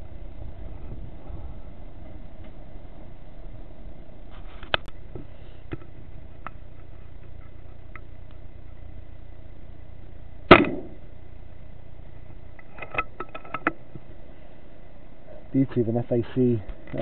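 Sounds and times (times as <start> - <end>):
steady low background noise: 0.0 - 17.0
air rifle shot: 10.5 - 11.0.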